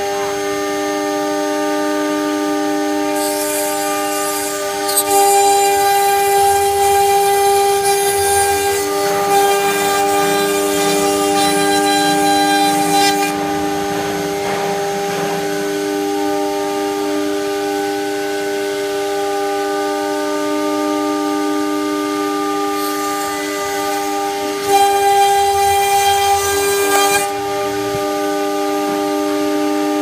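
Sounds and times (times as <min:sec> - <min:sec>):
router spindle whine: 0:00.0 - 0:30.0
high hiss of cutting: 0:03.1 - 0:13.4.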